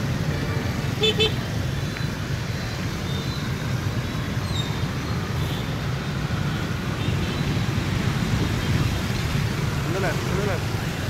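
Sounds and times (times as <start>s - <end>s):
traffic rumble on wet road: 0.0s - 11.0s.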